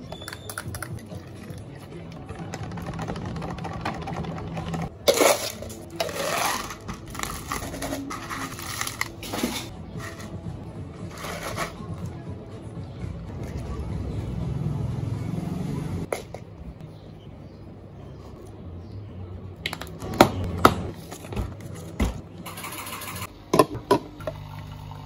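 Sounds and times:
ice cubes clattering: 0:05.1 - 0:09.7.

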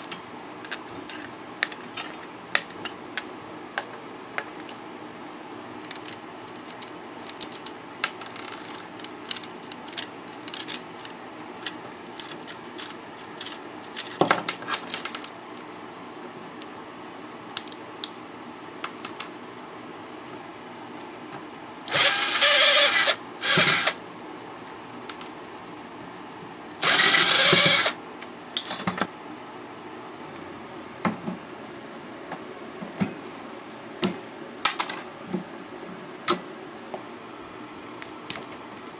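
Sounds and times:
metal parts clicking and clattering: 0:00.0 - 0:03.0, 0:05.8 - 0:15.3, 0:34.6 - 0:35.1
power drill whirring: 0:21.9 - 0:24.0, 0:26.8 - 0:28.0.

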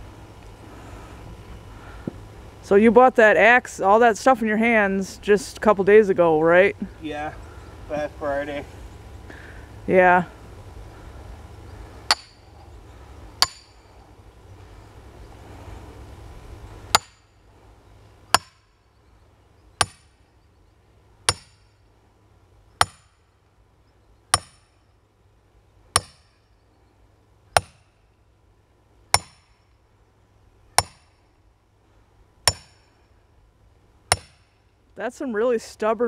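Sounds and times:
hammer striking steel wedge: 0:12.1 - 0:12.5, 0:13.4 - 0:13.8, 0:16.9 - 0:17.2, 0:18.3 - 0:18.6, 0:19.8 - 0:20.1, 0:21.3 - 0:21.7, 0:22.8 - 0:23.2, 0:24.3 - 0:24.7, 0:26.0 - 0:26.4, 0:27.6 - 0:27.8, 0:29.1 - 0:29.5, 0:30.8 - 0:31.2, 0:32.5 - 0:33.0, 0:34.1 - 0:34.5.

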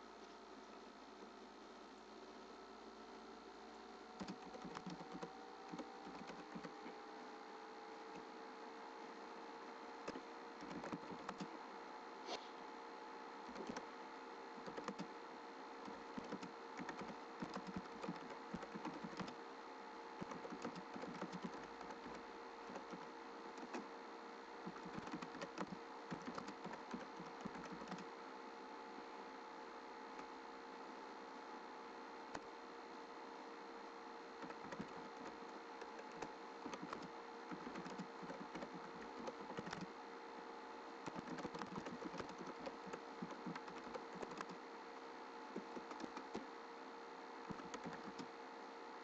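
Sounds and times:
faint steady hum: 0:00.0 - 0:49.0
keyboard typing: 0:04.2 - 0:06.8, 0:10.0 - 0:11.5, 0:13.4 - 0:13.9, 0:14.6 - 0:15.1, 0:15.8 - 0:19.4, 0:20.2 - 0:23.9, 0:24.6 - 0:28.1, 0:34.4 - 0:39.9, 0:41.0 - 0:44.6, 0:45.6 - 0:46.5, 0:47.4 - 0:48.3.

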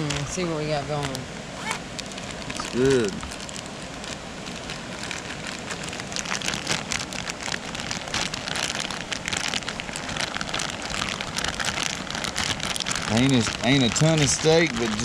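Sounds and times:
meat poured from a plastic bag: 0:01.8 - 0:15.0.

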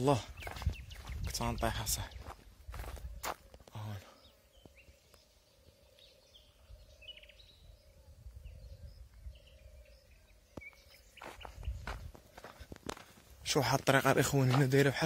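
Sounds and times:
footsteps crunching on dirt path: 0:00.0 - 0:05.3, 0:10.4 - 0:15.0
small birds chirping: 0:00.0 - 0:15.0
wind rumble on microphone: 0:00.2 - 0:03.7, 0:06.6 - 0:12.9.

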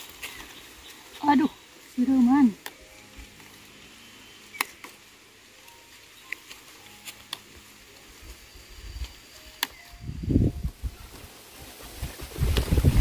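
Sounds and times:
wind buffeting microphone: 0:10.0 - 0:11.1, 0:11.7 - 0:13.0.

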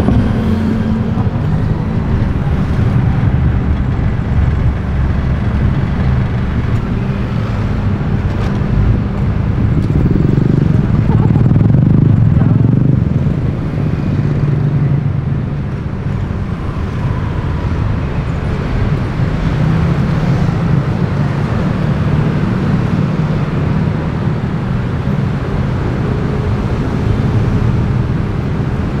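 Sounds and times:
motor scooters passing: 0:00.0 - 0:29.0
traffic rumble: 0:00.0 - 0:29.0.

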